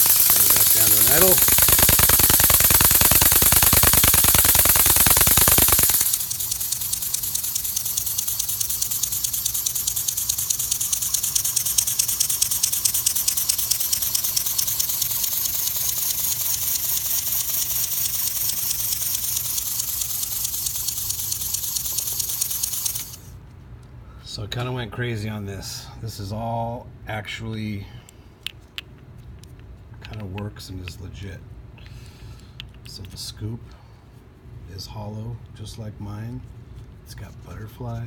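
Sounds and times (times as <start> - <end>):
steam engine exhaust chuffing: 0.0 - 23.3.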